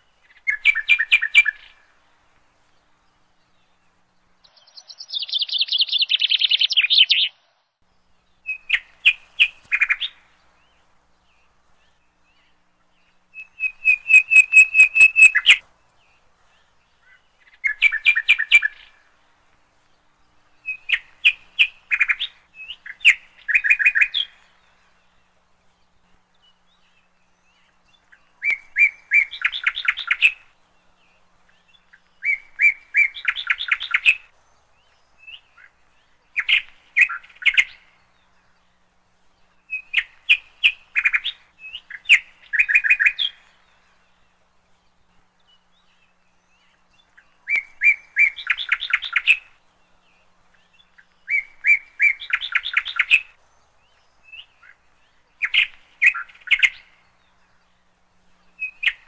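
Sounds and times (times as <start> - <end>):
songbird singing: 0.0 - 59.0.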